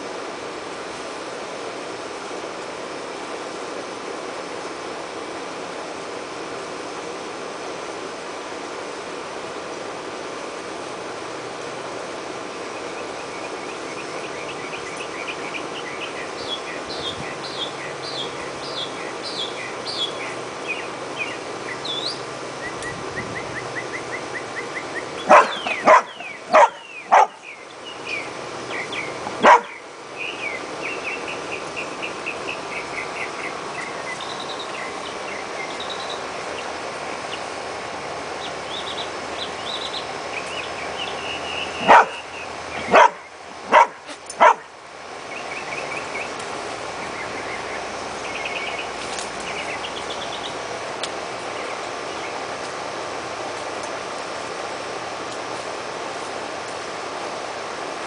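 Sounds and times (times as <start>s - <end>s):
small birds chirping: 12.6s - 52.8s
dog barking: 25.3s - 27.4s, 29.4s - 29.8s, 41.8s - 44.7s.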